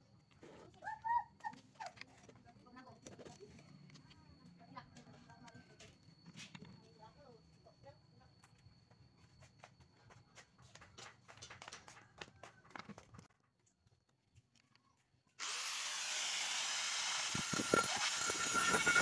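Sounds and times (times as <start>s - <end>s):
angle grinder whine: 15.4s - 19.0s
angle grinder clicking and rattling: 16.6s - 19.0s.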